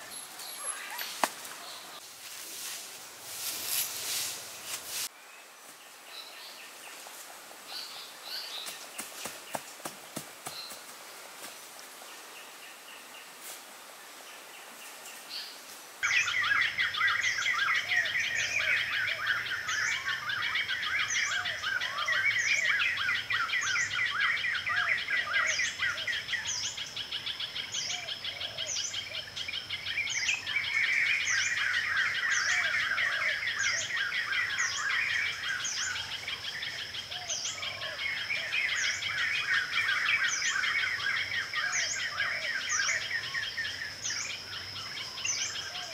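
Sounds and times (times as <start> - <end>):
birds chirping: 0.0 - 2.1, 15.3 - 45.9.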